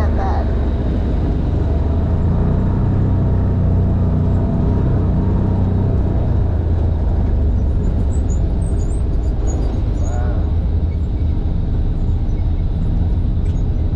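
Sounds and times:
vehicle engine droning: 0:00.0 - 0:13.9.

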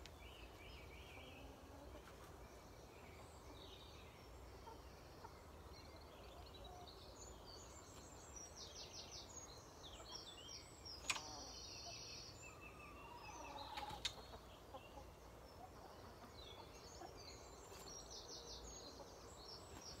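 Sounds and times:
songbirds singing: 0:00.0 - 0:20.0
sharp clicks: 0:11.0 - 0:11.3.

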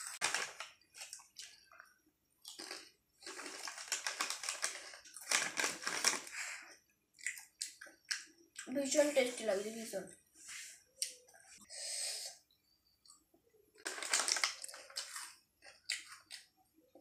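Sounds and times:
chips being chewed: 0:00.0 - 0:06.5, 0:13.8 - 0:16.5
chip packet crinkling: 0:00.0 - 0:06.6, 0:13.8 - 0:16.5.

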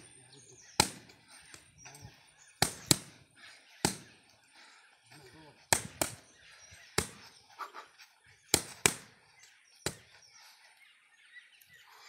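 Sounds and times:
boxing gloves smacking mitts: 0:00.8 - 0:01.6, 0:02.6 - 0:03.2, 0:03.8 - 0:04.1, 0:05.7 - 0:06.2, 0:06.9 - 0:07.3, 0:08.5 - 0:09.2, 0:09.8 - 0:10.1.

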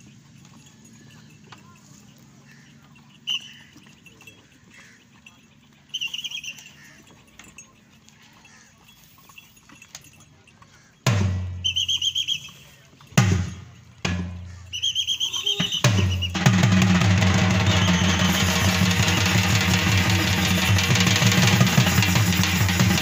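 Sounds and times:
trilling whistle blasts: 0:03.2 - 0:03.6, 0:05.9 - 0:06.7, 0:11.6 - 0:12.7, 0:14.7 - 0:16.5, 0:17.3 - 0:21.1.

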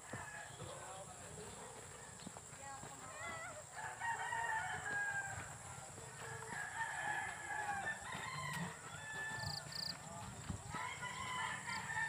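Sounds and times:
rooster crowing: 0:03.7 - 0:05.6, 0:06.2 - 0:10.0, 0:10.7 - 0:12.0.

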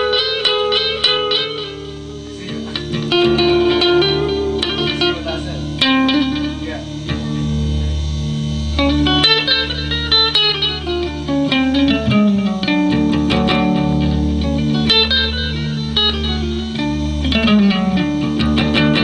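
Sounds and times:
electric guitar melody: 0:00.0 - 0:19.0.

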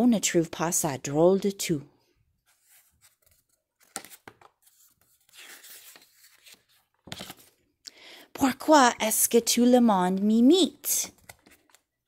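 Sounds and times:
page turning swish: 0:02.5 - 0:07.5.

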